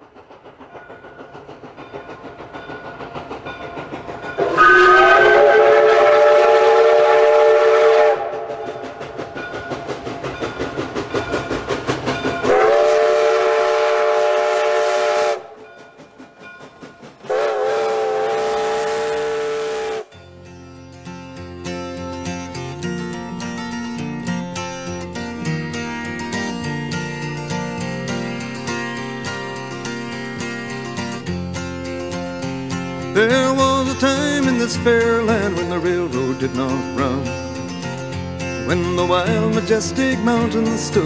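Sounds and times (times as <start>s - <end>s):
steam locomotive chuffing: 0.0s - 41.0s
steam whistle blasts: 4.4s - 8.8s, 12.5s - 15.6s, 17.3s - 20.2s.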